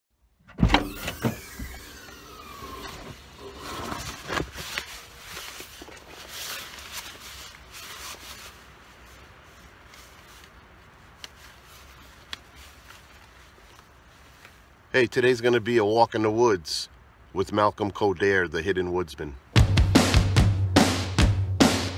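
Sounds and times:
jacket and straps rustling: 0:01.4 - 0:14.9.

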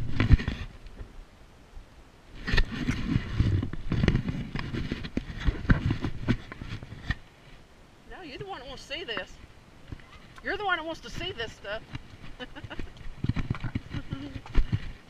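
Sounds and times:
hooves on rock: 0:11.2 - 0:15.0.

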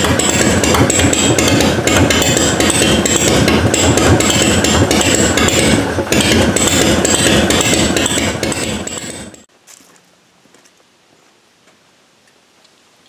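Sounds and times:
motorcycle engine idling: 0:00.0 - 0:09.5.

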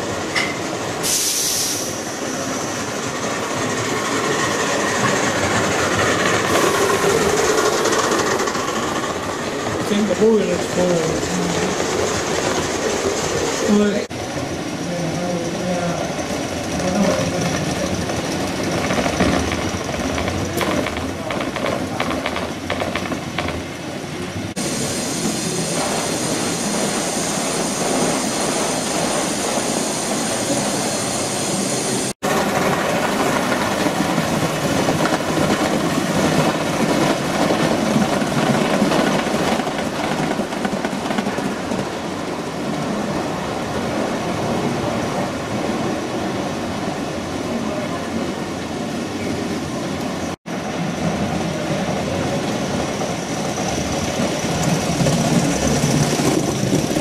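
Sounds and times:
train wheels rumbling on track: 0:00.0 - 0:57.0.

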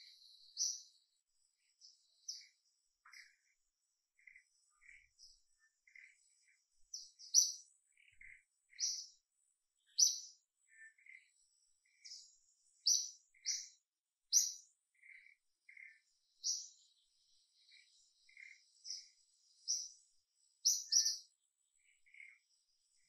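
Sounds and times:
softer lower bird calls: 0:00.0 - 0:09.2, 0:09.8 - 0:23.0
birds chirping: 0:00.0 - 0:23.0.

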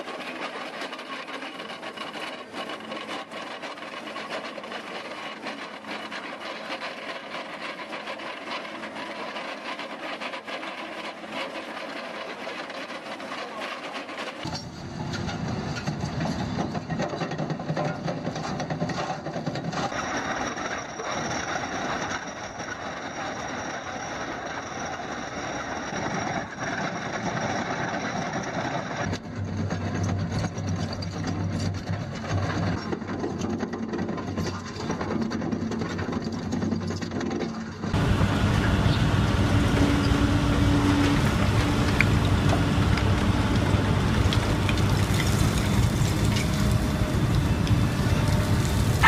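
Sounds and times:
rock cutter grinding rock: 0:00.0 - 0:14.7, 0:15.6 - 0:49.0
diesel engine running: 0:37.8 - 0:49.0.

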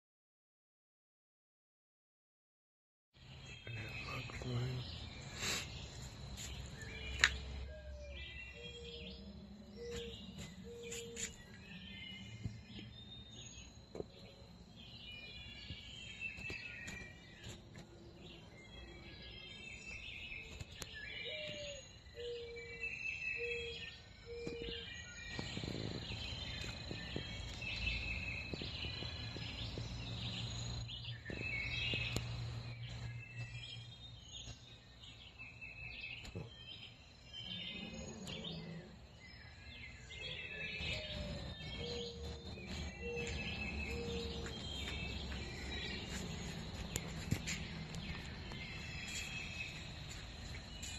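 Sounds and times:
birds chirping: 0:03.2 - 0:50.9
low hooting bird call: 0:40.0 - 0:47.4.

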